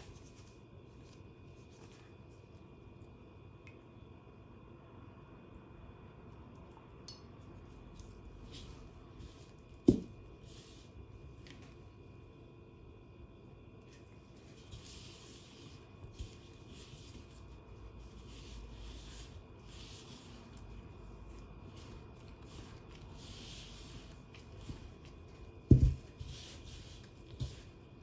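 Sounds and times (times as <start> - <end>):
hands rubbing gritty mixture: 14.4 - 28.0.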